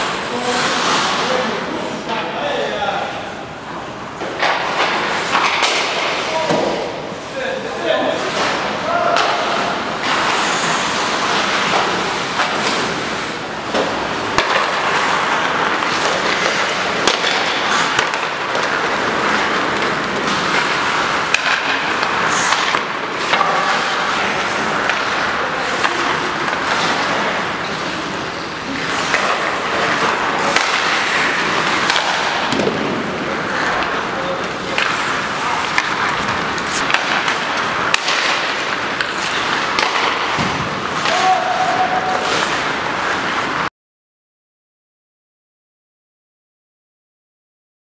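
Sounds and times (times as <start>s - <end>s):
skates scraping on ice: 0.0s - 2.6s, 4.1s - 43.7s
sticks hitting pucks: 0.0s - 3.0s, 4.1s - 43.7s.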